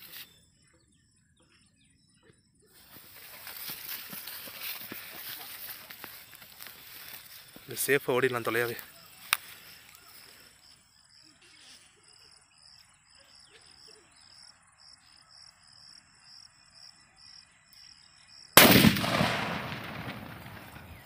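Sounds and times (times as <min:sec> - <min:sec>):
insects chirping: 0:02.7 - 0:21.0
firecracker blast echoing: 0:18.6 - 0:21.0.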